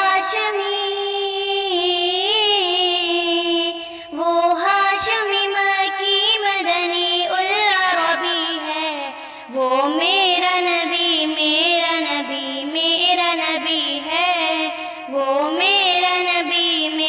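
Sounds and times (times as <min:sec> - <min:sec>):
high voice singing devotional song: 0:00.0 - 0:17.0
singer breathing: 0:03.7 - 0:04.2, 0:09.1 - 0:09.6, 0:14.7 - 0:15.2.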